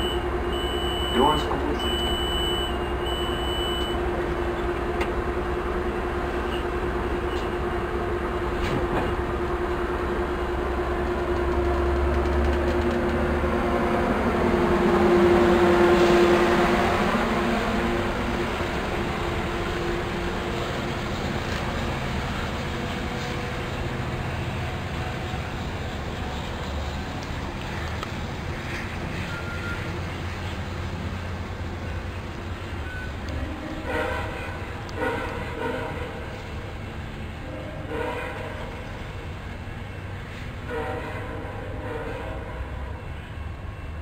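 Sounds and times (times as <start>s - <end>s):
door-closing warning beeps: 0.0s - 4.0s
train wheels rumbling on rail: 0.0s - 44.0s.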